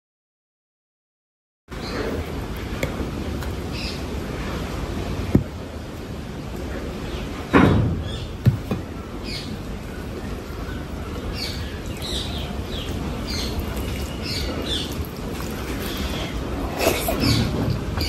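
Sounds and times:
close-miked eating sounds: 9.8 - 18.0.

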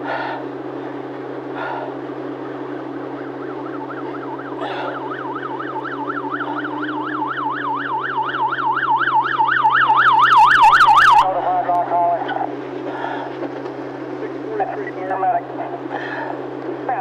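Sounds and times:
emergency siren yelping: 0.0 - 17.0.

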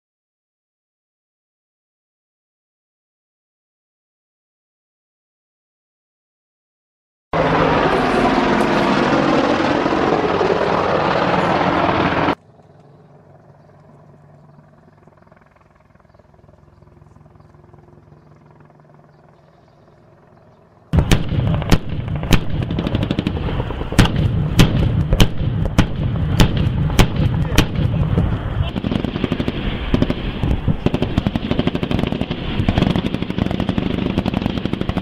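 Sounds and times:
faint helicopter drone: 7.4 - 35.0
helicopter passing: 7.4 - 35.0
gunfire shots: 20.9 - 35.0
low rumble: 21.0 - 33.7.

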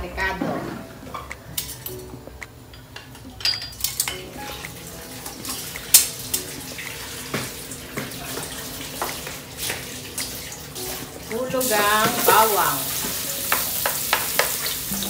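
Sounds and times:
oil sizzling in a wok: 4.3 - 15.0
oil crackles and pops: 4.5 - 10.4.

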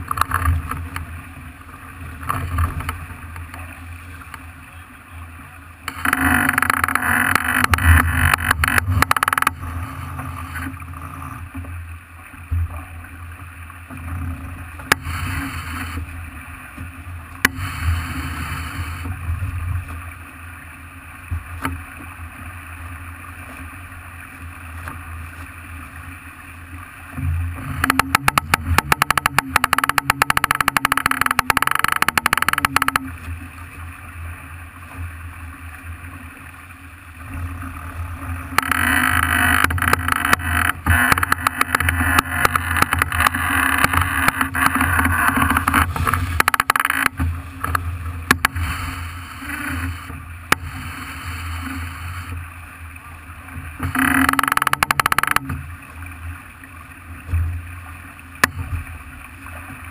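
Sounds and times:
rushing water: 0.0 - 59.9
rapid clicking or rattling: 27.8 - 33.0, 38.6 - 48.6, 53.8 - 55.5.

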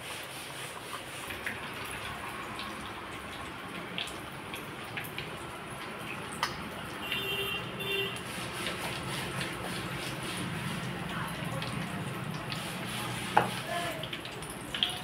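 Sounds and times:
deep-frying oil sizzling: 0.0 - 15.0.

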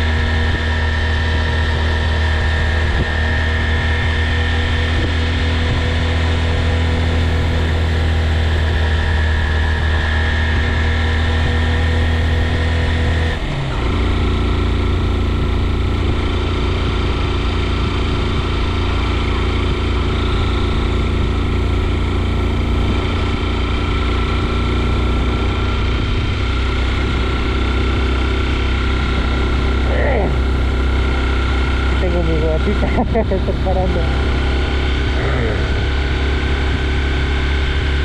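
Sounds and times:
vehicle engine running: 0.0 - 38.0
heavy low rumble: 14.1 - 38.0.

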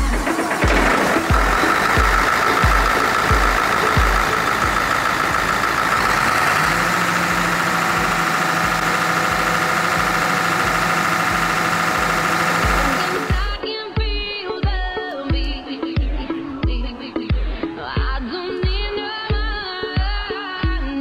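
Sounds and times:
diesel engine droning: 0.0 - 13.6.

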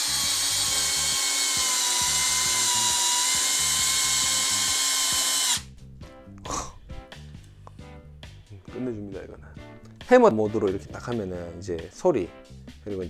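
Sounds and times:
cordless drill whining under load: 0.0 - 5.6.

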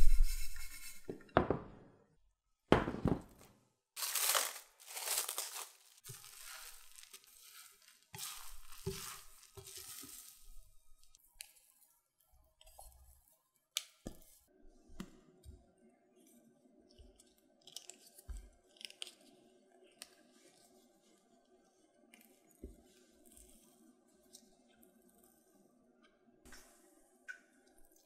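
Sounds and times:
sticky batter tearing and pulling: 4.0 - 11.6.

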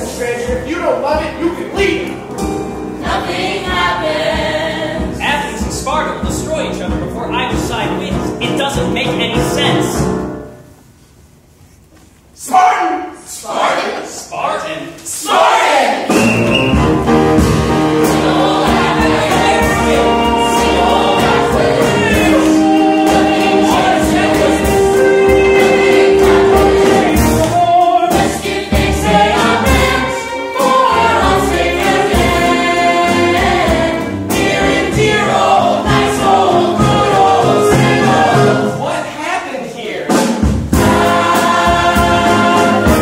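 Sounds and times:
drums keeping a beat: 0.0 - 2.0, 3.0 - 10.0, 16.0 - 38.9, 40.0 - 43.0
small pit band playing: 15.8 - 39.2, 40.0 - 43.0
cast singing in chorus: 18.0 - 38.7.

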